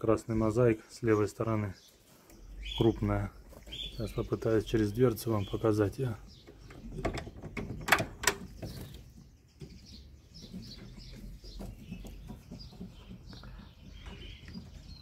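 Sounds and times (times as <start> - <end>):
canaries chirping: 0.0 - 15.0
cage door clicks and knocks: 6.6 - 8.9.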